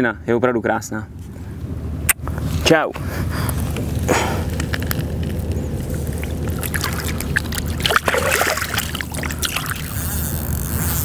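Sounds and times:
water splashing and sloshing: 0:04.7 - 0:10.0.

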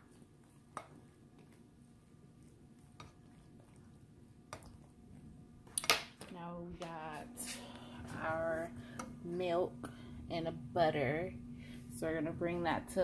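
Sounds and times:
plastic spoon stirring pasta: 0:00.0 - 0:05.8.

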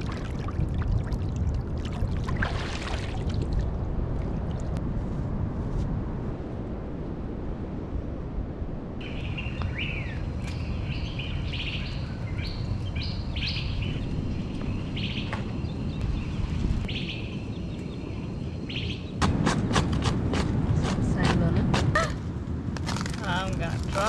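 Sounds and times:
birds chirping: 0:09.0 - 0:19.2.

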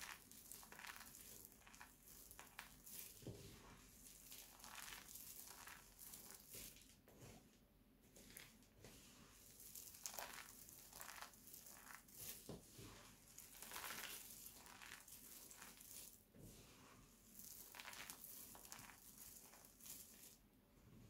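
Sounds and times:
dried soap crunching under fingers: 0:00.0 - 0:03.2, 0:04.1 - 0:07.0, 0:09.5 - 0:12.5, 0:13.3 - 0:16.2, 0:17.4 - 0:20.4.

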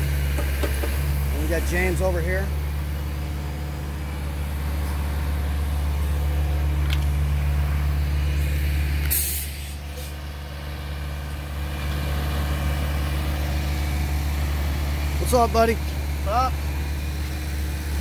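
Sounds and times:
truck engines running: 0:00.0 - 0:18.0
sharp hiss of air: 0:08.4 - 0:10.2.

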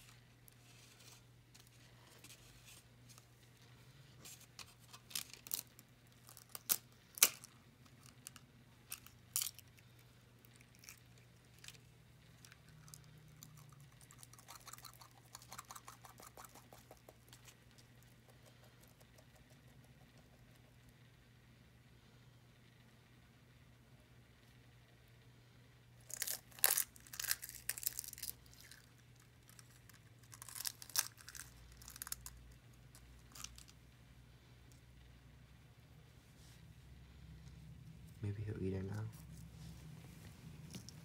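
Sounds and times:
eggshell cracking: 0:10.4 - 0:20.6, 0:26.0 - 0:33.8.

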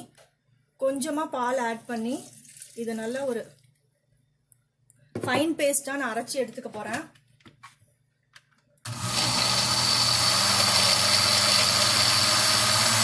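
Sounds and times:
blender running: 0:08.9 - 0:13.0.

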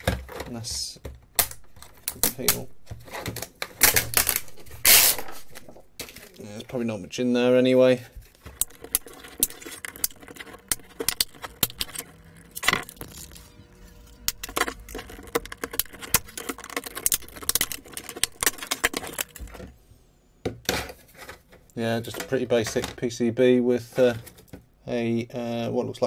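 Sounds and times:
plastic case clicking and snapping: 0:01.1 - 0:05.0, 0:14.3 - 0:19.7
loud plastic crack: 0:01.2 - 0:06.4, 0:14.3 - 0:19.7.

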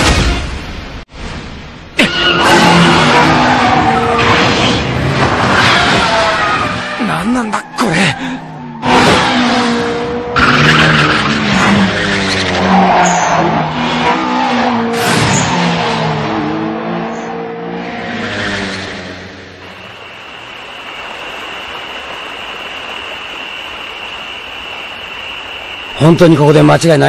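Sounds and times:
car engines revving hard: 0:02.0 - 0:20.0
tyre squeals: 0:10.4 - 0:15.6.

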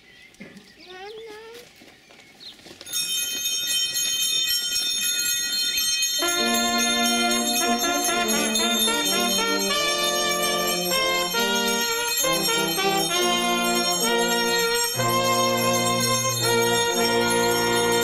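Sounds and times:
hand bells jingling: 0:02.7 - 0:18.0
instruments playing slow hymn: 0:06.2 - 0:18.0.

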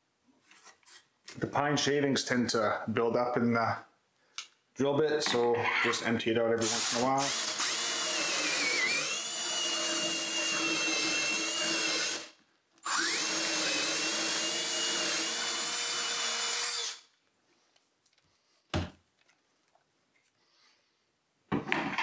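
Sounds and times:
cordless drill motor whine: 0:12.8 - 0:17.0.

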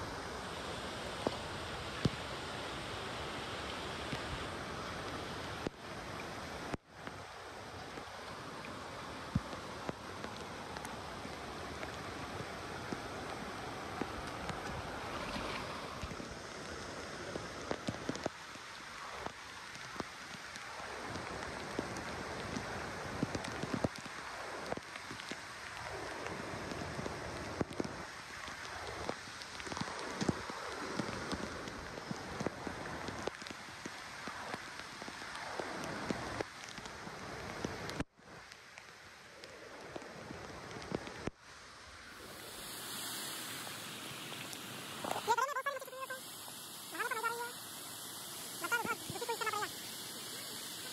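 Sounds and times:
water splashing and dripping: 0:00.0 - 0:41.4, 0:42.1 - 0:50.9
steady rain falling: 0:00.0 - 0:50.9
raindrops ticking close: 0:16.0 - 0:41.4.

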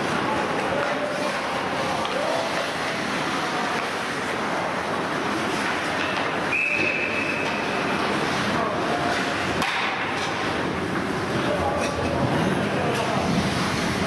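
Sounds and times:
referee's whistle blast: 0:06.5 - 0:07.5.

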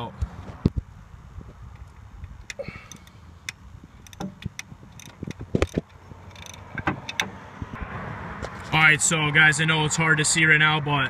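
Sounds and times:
hand ratchet clicking: 0:02.4 - 0:07.3.

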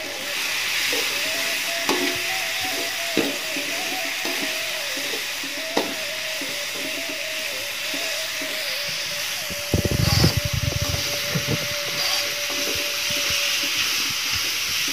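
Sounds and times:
spice paste sizzling in oil: 0:00.0 - 0:14.9
metal spoon scraping wok: 0:07.7 - 0:14.9.

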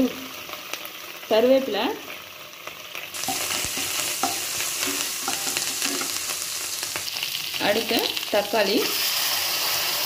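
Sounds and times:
hot oil sizzling: 0:00.0 - 0:10.0
metal ladle stirring and tapping: 0:03.2 - 0:06.3.

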